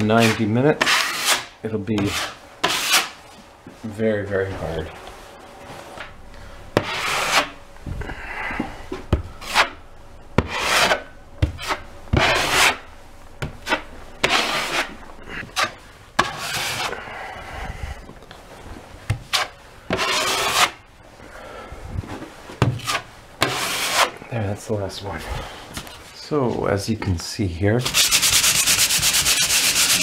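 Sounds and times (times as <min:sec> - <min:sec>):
putty knife scraping drywall: 0:00.1 - 0:03.2, 0:06.8 - 0:07.6, 0:09.4 - 0:09.8, 0:10.4 - 0:12.8, 0:13.6 - 0:17.0, 0:19.3 - 0:20.8, 0:22.8 - 0:24.2, 0:27.8 - 0:30.0.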